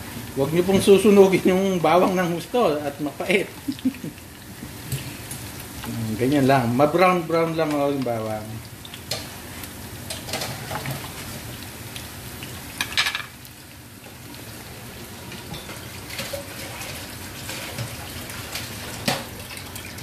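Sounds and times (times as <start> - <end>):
garlic sizzling in oil: 0.0 - 20.0.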